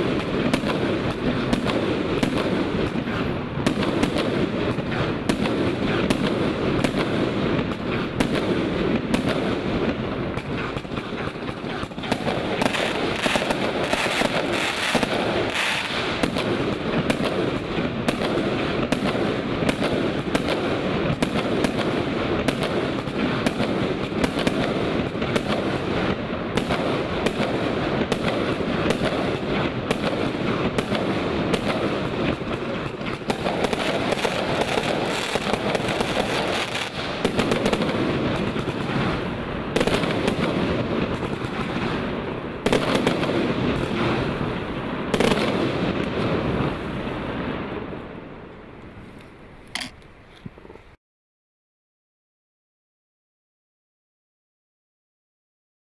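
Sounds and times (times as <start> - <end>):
fireworks launching and bursting: 0.0 - 48.6.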